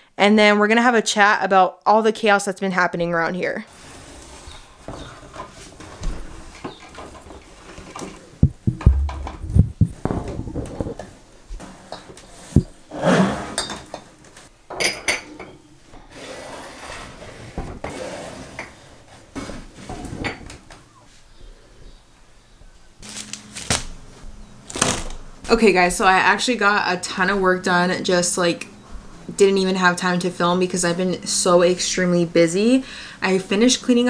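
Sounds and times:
bottles and glass cups knocking: 0:08.4 - 0:11.0.

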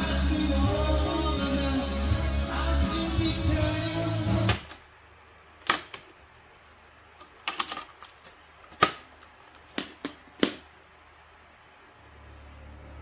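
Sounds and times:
cassette deck plastic clicks: 0:05.6 - 0:06.1.

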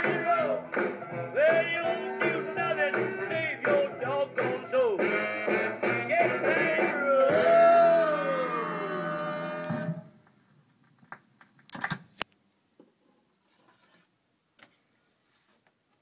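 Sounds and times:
guitar music from record player: 0:00.0 - 0:10.1.

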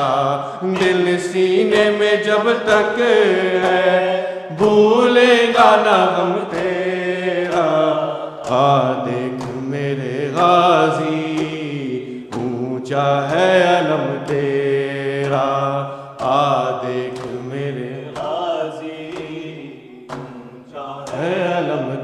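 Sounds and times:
man chanting: 0:00.0 - 0:22.0
hands slapping on chest: 0:17.1 - 0:17.5, 0:20.1 - 0:21.2.

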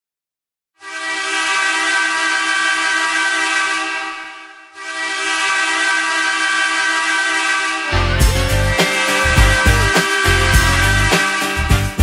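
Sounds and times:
loud air horn blast: 0:00.8 - 0:12.0.

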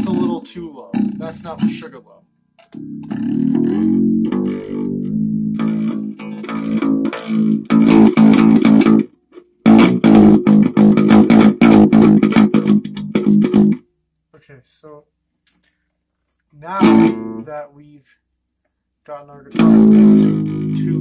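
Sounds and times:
low-tuned electric guitar strumming: 0:00.0 - 0:02.0, 0:02.6 - 0:13.8, 0:16.8 - 0:17.5, 0:19.5 - 0:21.0.

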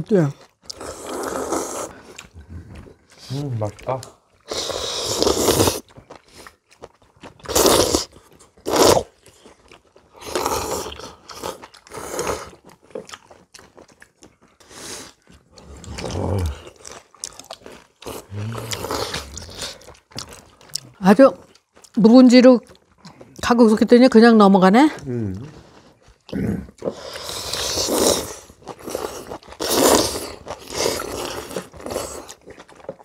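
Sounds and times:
chewing: 0:00.2 - 0:23.9, 0:24.8 - 0:33.0
loud noodle slurps: 0:00.7 - 0:02.6, 0:04.4 - 0:06.4, 0:07.5 - 0:09.2, 0:10.1 - 0:12.6, 0:18.0 - 0:19.9, 0:26.8 - 0:32.4.

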